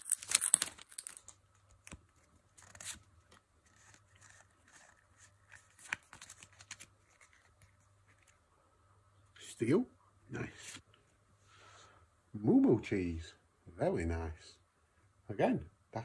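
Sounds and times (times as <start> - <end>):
trading cards rustling and clicking: 0.0 - 8.4.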